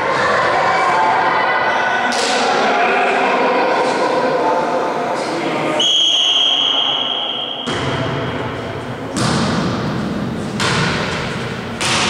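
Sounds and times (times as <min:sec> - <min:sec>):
referee's whistle: 0:05.8 - 0:07.7
volleyball hits echoing: 0:07.4 - 0:12.0.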